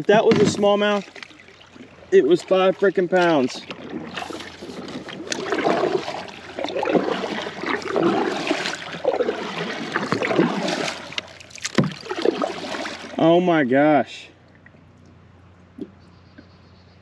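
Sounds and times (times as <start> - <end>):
paddle splashing in water: 0.0 - 13.3.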